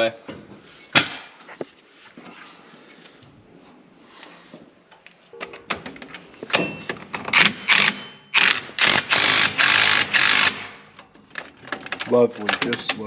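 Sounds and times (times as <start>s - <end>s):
cordless power tool rattling: 7.3s - 12.9s.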